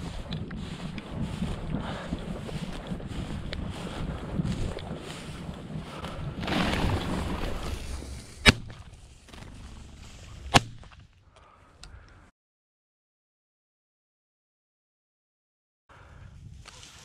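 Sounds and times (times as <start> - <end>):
rustling through dry grass: 0.0 - 11.2, 16.1 - 17.0.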